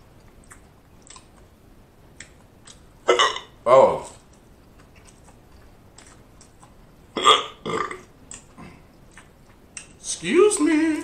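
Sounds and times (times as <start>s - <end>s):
wet mouth clicks and smacks: 0.2s - 1.5s, 8.3s - 10.0s
man burping: 3.1s - 4.0s, 7.2s - 8.7s.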